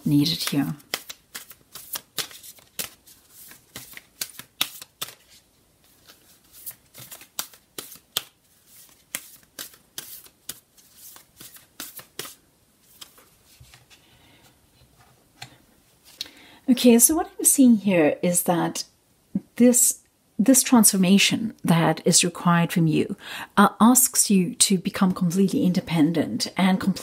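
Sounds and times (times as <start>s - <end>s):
cards shuffled by hand: 0.2s - 14.0s.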